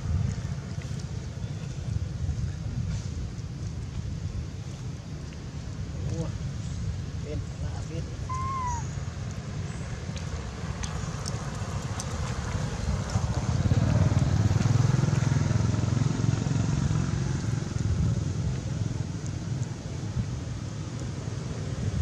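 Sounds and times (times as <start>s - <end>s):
motor vehicle engine rumble passing: 9.7s - 20.0s.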